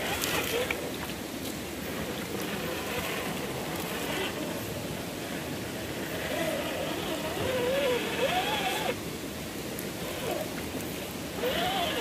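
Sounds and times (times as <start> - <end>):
electric motor whining: 6.0 - 9.0, 11.4 - 12.0.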